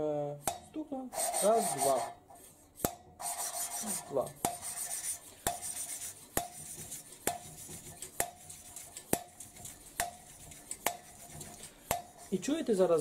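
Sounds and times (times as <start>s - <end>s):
faint gritty rubbing: 1.1s - 13.0s.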